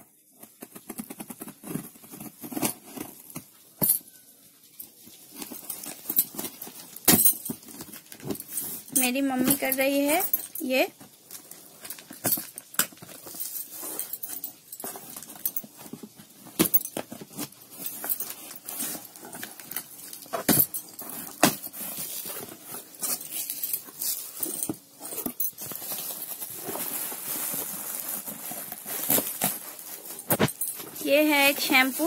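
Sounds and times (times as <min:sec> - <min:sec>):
bubble wrap rustling: 0:00.1 - 0:32.0
cardboard scraping and tearing: 0:25.1 - 0:32.0.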